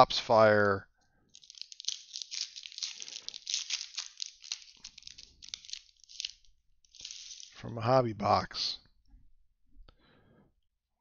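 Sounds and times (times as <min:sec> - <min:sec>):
foil wrapper tearing and crinkling: 0:01.3 - 0:07.6.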